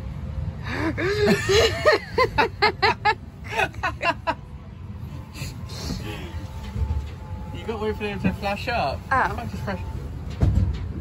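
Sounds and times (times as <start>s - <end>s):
ride car rumbling along a track: 0.0s - 11.0s
person laughing: 0.7s - 4.4s.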